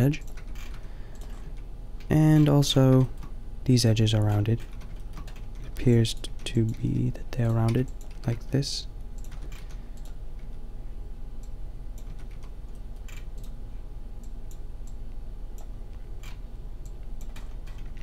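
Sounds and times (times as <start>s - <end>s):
keyboard and mouse clicks: 0.2s - 3.3s, 9.2s - 10.5s, 15.6s - 18.0s.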